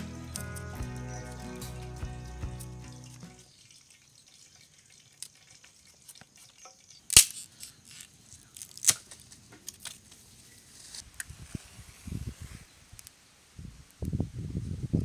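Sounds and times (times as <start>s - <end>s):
stick crackling: 7.1s - 10.2s.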